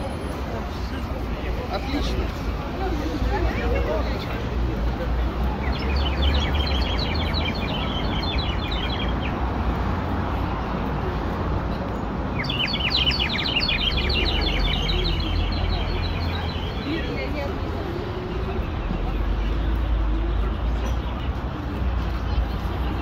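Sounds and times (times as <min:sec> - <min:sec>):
small birds chirping: 0:05.5 - 0:09.4, 0:12.3 - 0:17.6.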